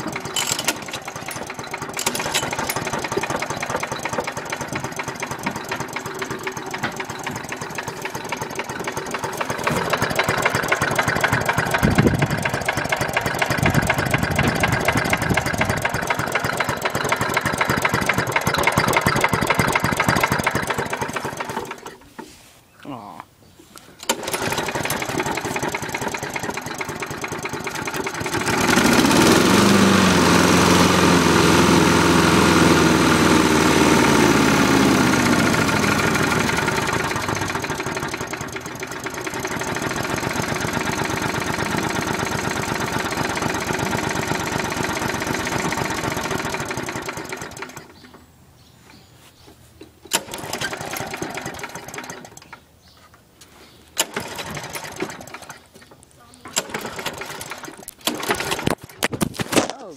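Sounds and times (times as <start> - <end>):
lawn mower engine idling: 0.0 - 22.4, 24.0 - 48.5, 49.4 - 59.9.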